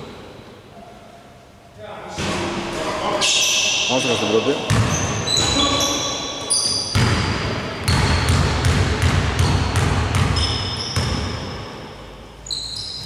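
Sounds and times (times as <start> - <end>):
basketball bouncing on wooden floor: 4.7 - 5.6, 6.9 - 11.6.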